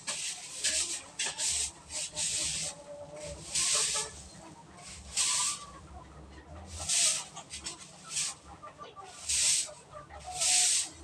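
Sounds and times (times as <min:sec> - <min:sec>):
broom sweeping concrete floor: 0:00.0 - 0:05.8, 0:06.7 - 0:11.0.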